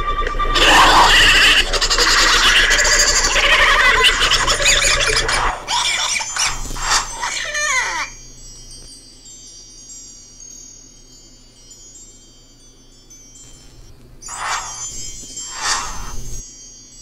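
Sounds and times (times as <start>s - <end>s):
harsh noise with falling squeal: 0.0s - 8.2s, 14.2s - 16.4s
high chime tones ringing: 6.3s - 17.0s.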